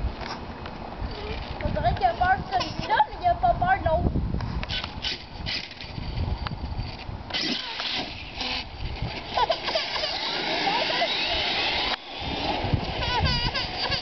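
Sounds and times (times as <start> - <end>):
toy truck tyres rumbling: 4.7 - 14.0
electric motor whine: 7.3 - 14.0.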